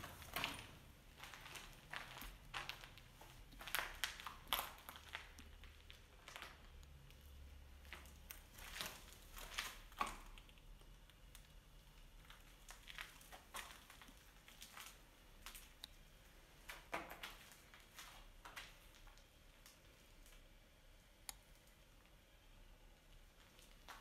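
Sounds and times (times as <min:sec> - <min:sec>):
footsteps on grit and rubble: 0:00.0 - 0:06.8, 0:07.8 - 0:10.4, 0:12.3 - 0:15.8, 0:16.6 - 0:19.7.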